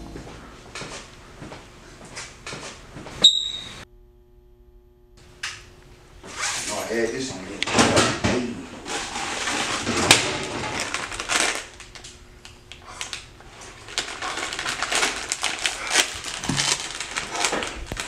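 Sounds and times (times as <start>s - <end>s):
foil chip bag crinkling: 8.9s - 18.0s.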